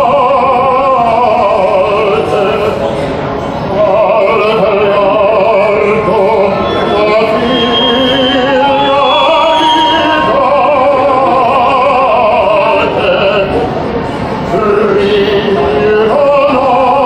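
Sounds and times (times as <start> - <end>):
man singing opera: 0.0 - 2.8, 3.7 - 13.7, 14.5 - 17.0.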